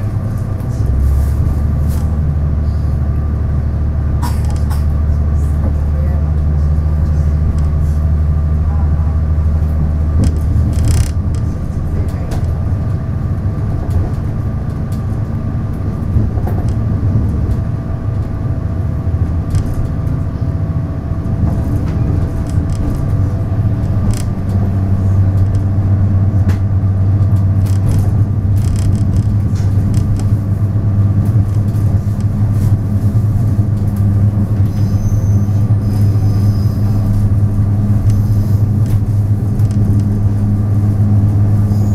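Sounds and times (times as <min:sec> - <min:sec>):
diesel engine droning: 0:00.0 - 0:41.9
short engine knocks: 0:26.4 - 0:30.4.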